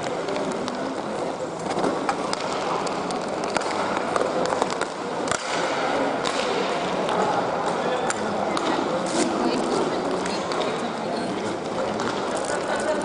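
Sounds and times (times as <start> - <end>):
hockey sticks and puck clacking: 0.0 - 13.0
rink crowd hubbub: 0.0 - 13.0
skates scraping ice: 8.5 - 10.8.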